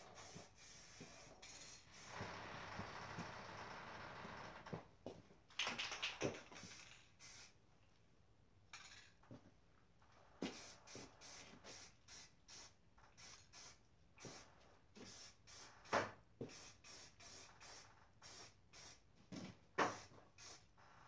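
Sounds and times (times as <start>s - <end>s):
spray paint can hissing: 0.0s - 2.1s, 6.6s - 7.6s, 10.5s - 14.4s, 15.1s - 15.8s, 16.5s - 19.0s, 19.8s - 20.6s.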